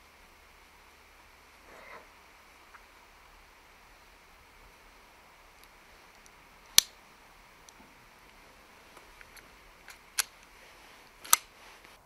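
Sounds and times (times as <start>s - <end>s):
faint ticks: 1.2s - 12.0s
air rifle magazine clicks: 9.2s - 10.4s, 11.2s - 11.5s.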